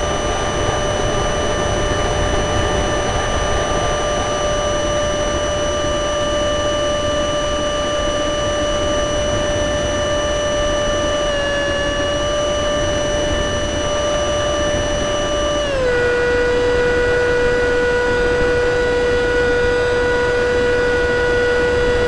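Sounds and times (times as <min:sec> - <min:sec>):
model jet motor whine: 0:00.0 - 0:22.0.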